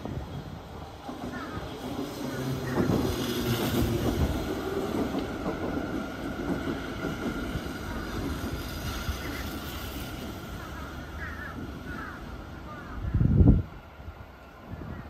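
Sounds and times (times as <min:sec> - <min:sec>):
train wheels rumbling on rails: 0:00.0 - 0:15.0.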